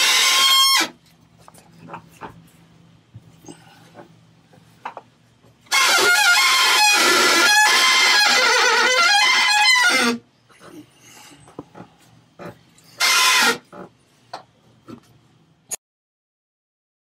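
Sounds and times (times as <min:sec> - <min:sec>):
rudder shaft squealing: 0:05.7 - 0:10.2, 0:12.8 - 0:13.8.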